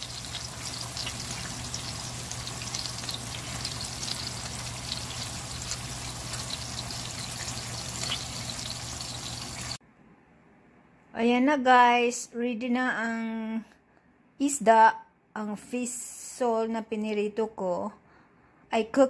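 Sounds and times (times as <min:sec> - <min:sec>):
fish frying in oil: 0:00.0 - 0:09.8
oil crackling and popping: 0:00.0 - 0:09.8.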